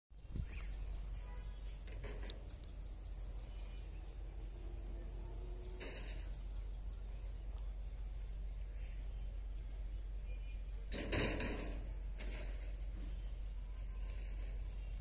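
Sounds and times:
birds chirping: 0.1 - 15.0
steady low rumble: 1.8 - 10.9.

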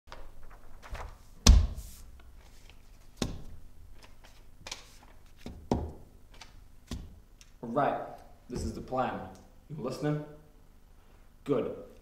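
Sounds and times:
paper rustling: 0.1 - 5.6.

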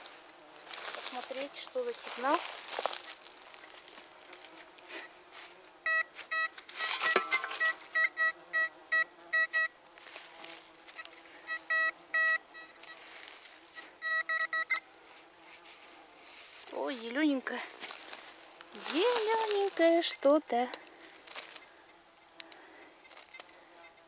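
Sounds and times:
metal detector beeping: 5.9 - 9.7, 10.9 - 14.9.

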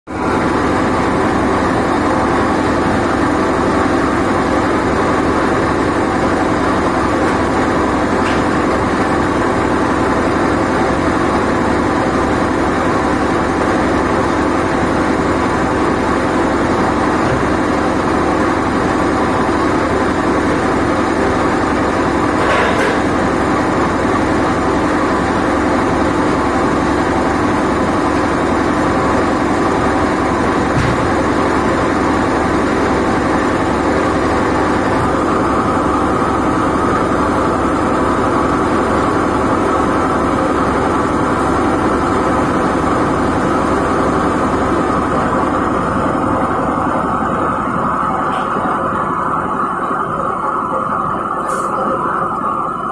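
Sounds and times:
machinery droning: 0.1 - 52.9
brief noise: 47.0 - 52.9.

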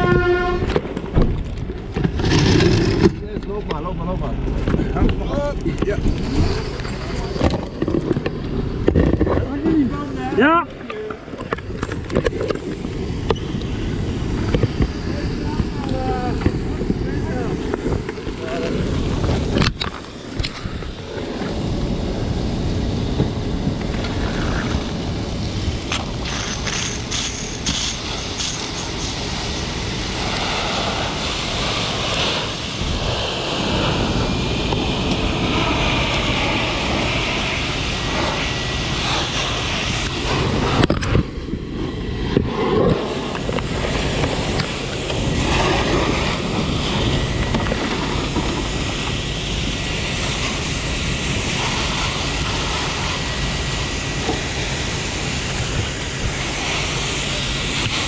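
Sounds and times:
fire hose spraying water: 0.0 - 58.0
wind buffeting microphone: 0.0 - 58.0.

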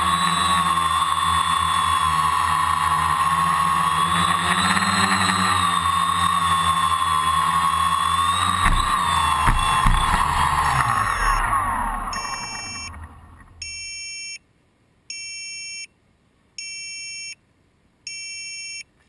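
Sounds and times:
drone motors spinning down: 0.0 - 13.9
shrill electronic beeps: 8.2 - 14.4.

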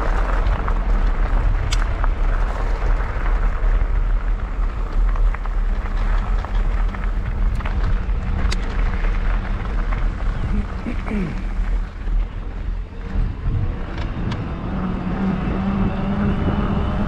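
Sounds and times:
tyres crunching on gravel: 0.0 - 13.4
wind rumbling on microphone: 0.0 - 17.0.

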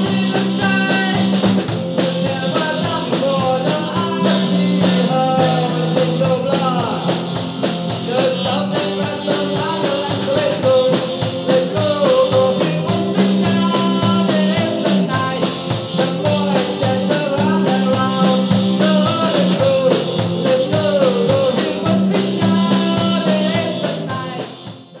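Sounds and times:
drums keeping a steady beat: 0.0 - 25.0
electric bass: 0.0 - 25.0
man singing: 0.0 - 25.0.

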